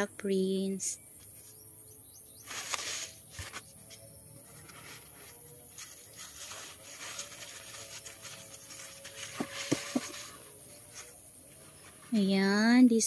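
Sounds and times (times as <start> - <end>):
crumpled paper rustling: 2.5 - 12.1.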